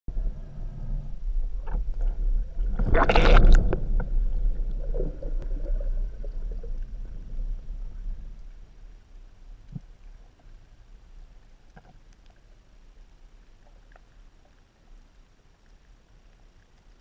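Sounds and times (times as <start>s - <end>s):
underwater water rumble: 0.1s - 17.0s
gurgling rush of bubbles: 1.4s - 8.7s
small gurgles and clicks: 1.5s - 17.0s.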